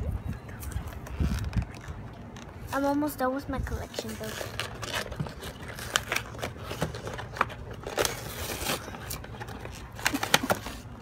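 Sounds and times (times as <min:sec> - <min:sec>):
packaging being torn open: 0:04.2 - 0:10.9.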